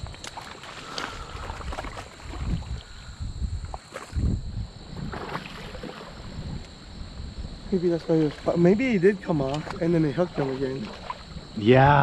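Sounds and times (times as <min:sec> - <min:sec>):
fish splashing: 0:00.0 - 0:04.3, 0:04.9 - 0:06.5, 0:08.1 - 0:11.6
creek water sloshing: 0:00.0 - 0:06.9, 0:07.8 - 0:11.8
wind on microphone: 0:01.2 - 0:12.0.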